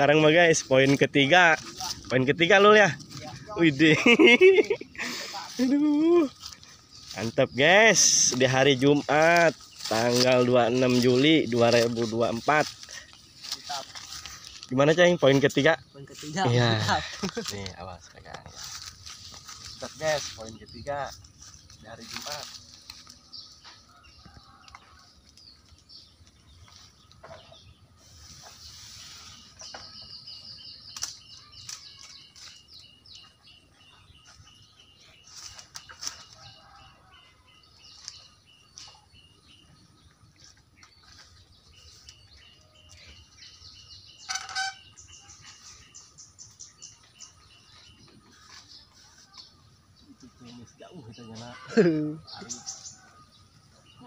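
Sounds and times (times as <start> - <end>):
bird calling clipped notes: 29.6 - 33.4, 41.9 - 45.6.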